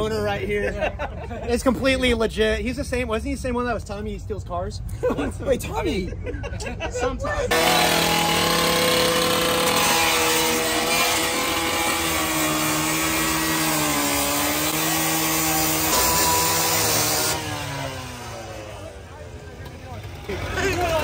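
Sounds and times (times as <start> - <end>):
cut-off saw cutting metal: 7.5 - 19.0.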